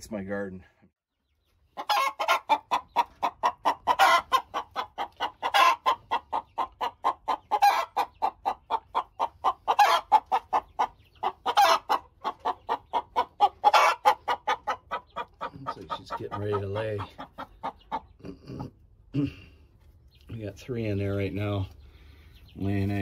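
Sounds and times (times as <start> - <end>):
hen clucking: 1.1 - 23.0
hen squawking: 1.8 - 18.7.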